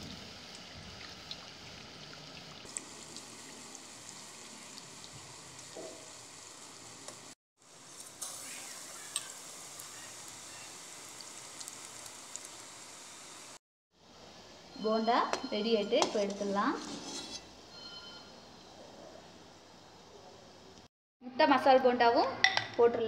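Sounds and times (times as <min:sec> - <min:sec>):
deep-frying sizzle and crackles: 0:00.0 - 0:13.6.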